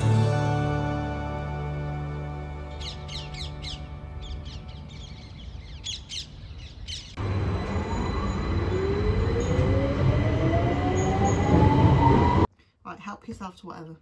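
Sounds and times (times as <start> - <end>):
birds chirping: 2.6 - 9.9
motor whine rising in pitch: 7.2 - 12.5
train carriage rumbling: 7.2 - 12.5.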